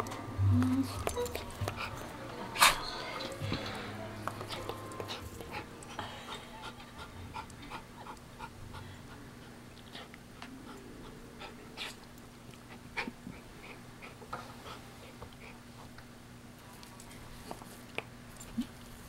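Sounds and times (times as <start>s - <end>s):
dog panting: 4.5s - 15.9s.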